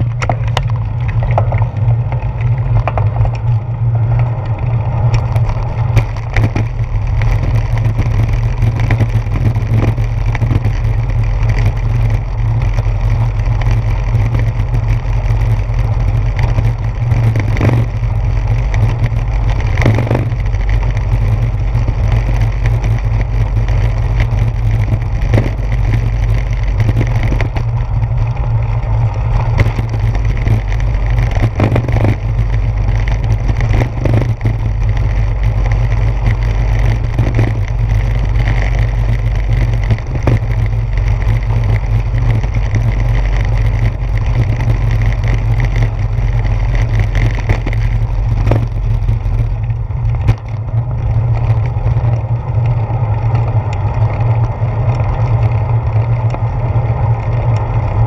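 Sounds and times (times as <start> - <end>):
bicycle rattling over brick pavement: 0.0 - 58.0.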